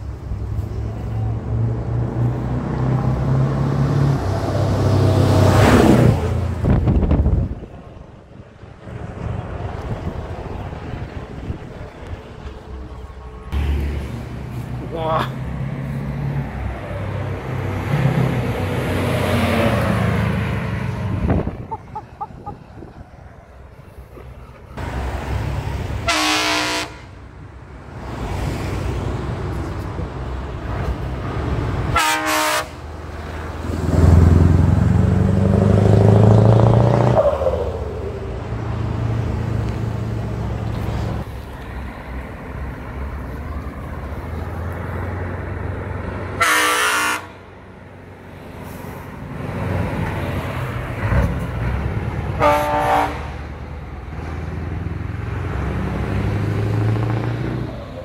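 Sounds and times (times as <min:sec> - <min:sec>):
truck engines driving past: 0:00.0 - 0:58.0
truck horn blasts: 0:26.0 - 0:27.2, 0:31.9 - 0:32.8, 0:46.4 - 0:47.4, 0:52.4 - 0:53.4.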